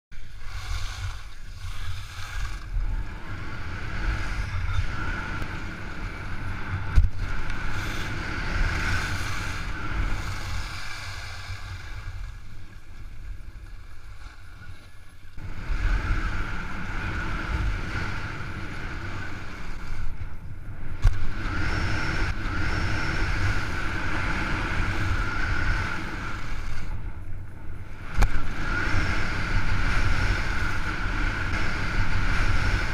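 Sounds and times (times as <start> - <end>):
skis sliding over snow: 0.2 - 20.2
wind buffeting microphone: 0.2 - 32.9.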